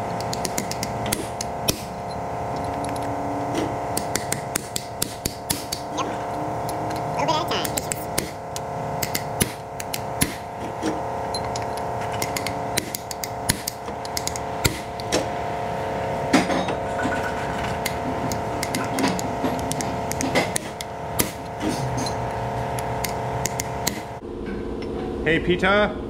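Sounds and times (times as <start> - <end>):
hammer striking metal chisel: 0.1 - 2.0, 3.9 - 5.9, 9.0 - 15.2, 17.8 - 24.1.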